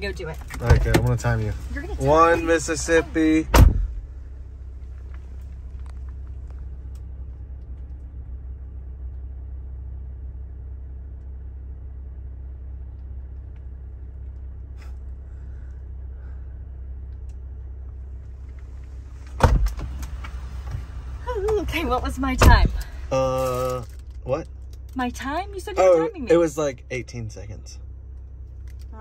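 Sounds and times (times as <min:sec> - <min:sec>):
car engine idling: 0:00.0 - 0:29.0
car door clunk: 0:00.4 - 0:04.1, 0:19.2 - 0:21.7.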